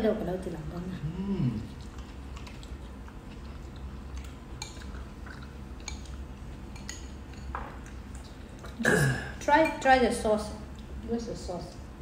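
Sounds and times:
low steady hum: 0.0 - 12.0
chewing: 1.4 - 8.8.

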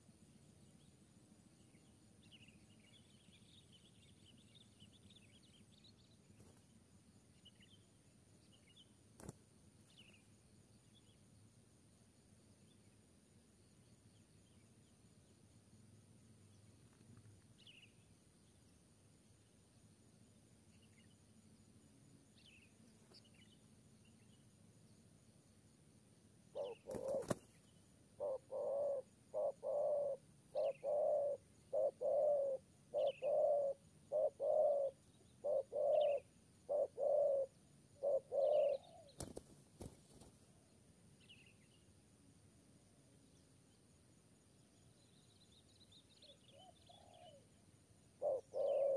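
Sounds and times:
small birds chirping: 0.0 - 11.3, 16.4 - 19.4, 20.6 - 25.0, 26.5 - 42.0, 43.0 - 48.9
dove cooing: 26.5 - 27.5, 28.2 - 40.0, 46.5 - 47.6, 48.2 - 48.9.

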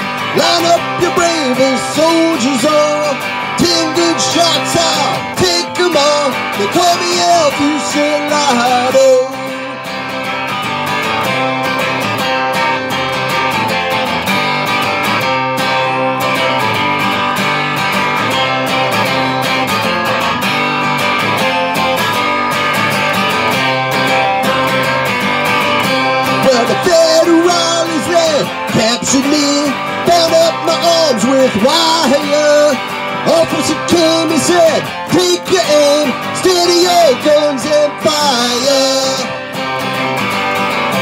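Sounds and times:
man singing: 0.0 - 10.3, 26.1 - 40.0
acoustic guitar strumming: 0.0 - 41.0.

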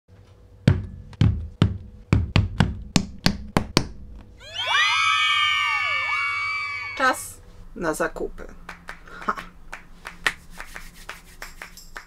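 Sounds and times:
crowd cheering: 4.4 - 7.2.

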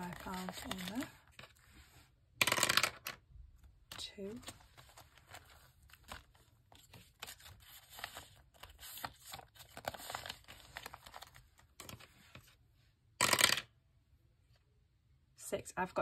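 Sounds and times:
plastic and paper rustling: 0.0 - 2.1, 3.9 - 12.6
die clattering down plastic tower: 13.2 - 13.7.

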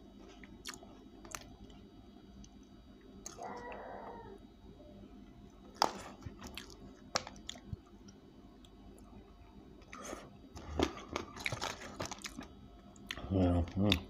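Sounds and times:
person chewing crispy food: 0.2 - 1.8, 5.7 - 9.2, 9.8 - 14.0.

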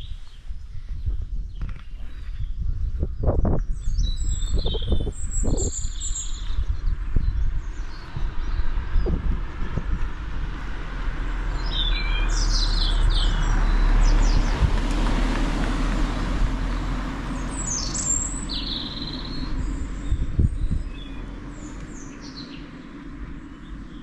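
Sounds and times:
songbirds chirping: 0.0 - 24.0
low rushing noise: 6.3 - 24.0.

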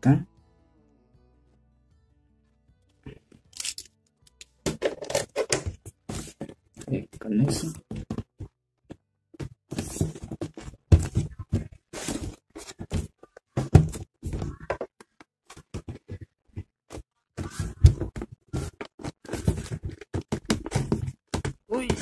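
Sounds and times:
cardboard box knocks and scraping: 9.4 - 14.6, 17.4 - 22.0.

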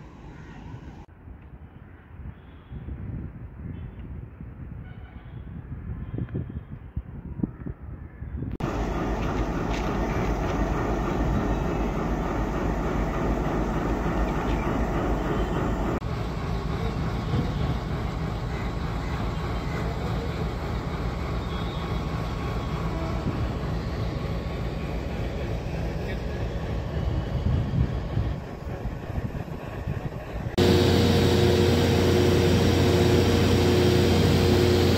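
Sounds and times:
wheels clattering on rails: 8.6 - 20.2
diesel locomotive engine: 8.6 - 34.9.

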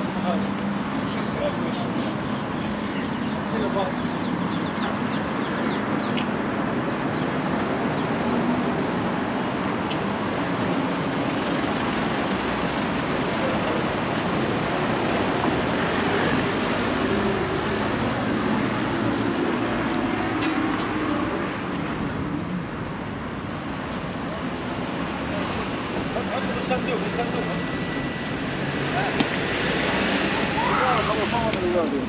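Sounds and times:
cars driving by: 0.0 - 32.0.

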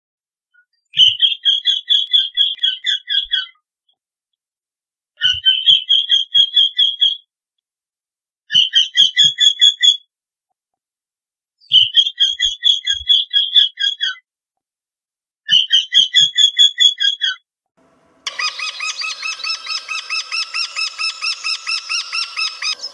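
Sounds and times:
bird repeated calls: 0.6 - 3.6, 18.3 - 22.9.

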